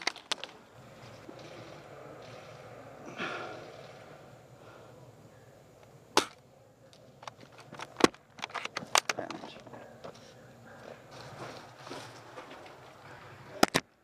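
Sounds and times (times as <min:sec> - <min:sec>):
gear clicks and knocks: 0:00.0 - 0:02.4.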